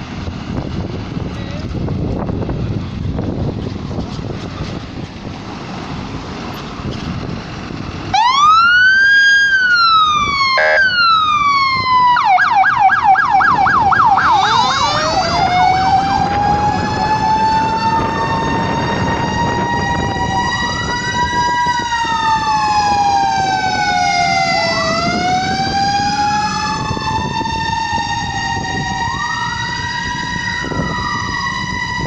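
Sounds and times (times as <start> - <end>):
low engine rumble: 0.0 - 32.0
fire engine siren: 7.1 - 32.0.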